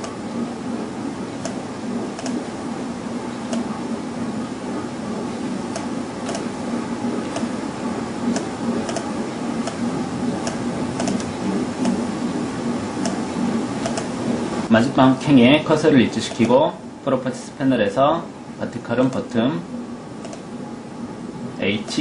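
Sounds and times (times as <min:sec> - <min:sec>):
background hum and hiss: 0:00.0 - 0:22.0
computer mouse clicking: 0:02.2 - 0:02.4, 0:03.5 - 0:03.7, 0:05.7 - 0:06.5, 0:07.3 - 0:07.5, 0:08.3 - 0:09.8, 0:10.4 - 0:12.0, 0:13.8 - 0:14.1, 0:20.2 - 0:20.5.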